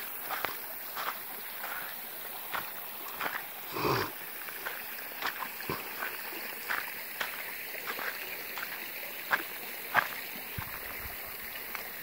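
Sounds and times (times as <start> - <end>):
monkey grunt call: 3.7 - 4.2, 5.6 - 6.0.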